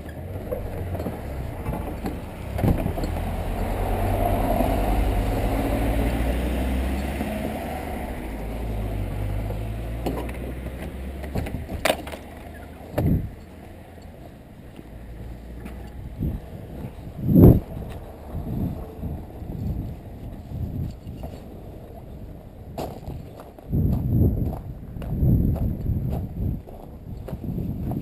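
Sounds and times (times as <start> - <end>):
small car driving past: 0.0 - 14.0.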